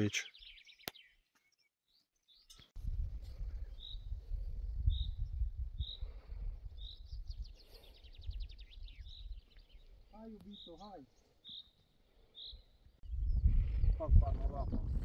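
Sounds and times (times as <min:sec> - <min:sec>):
small songbird chirping: 0:00.1 - 0:02.8, 0:03.4 - 0:14.2
wind rumble on microphone: 0:02.8 - 0:10.0, 0:12.9 - 0:15.0.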